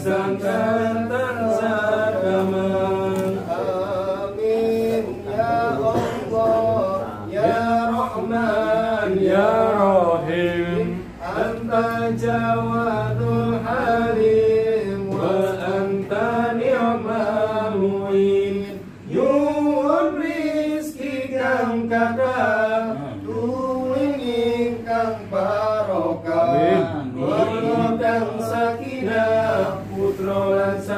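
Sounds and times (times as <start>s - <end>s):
men chanting a prayer: 0.0s - 30.9s.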